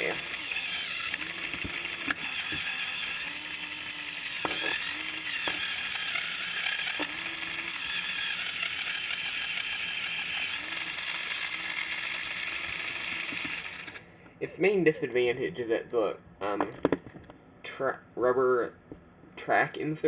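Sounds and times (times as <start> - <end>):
plastic gears rattling: 0.0 - 14.0
sharp clicks: 0.1 - 14.0.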